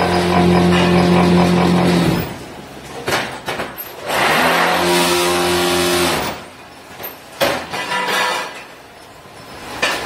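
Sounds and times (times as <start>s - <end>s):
metal clanks: 7.0s - 8.8s.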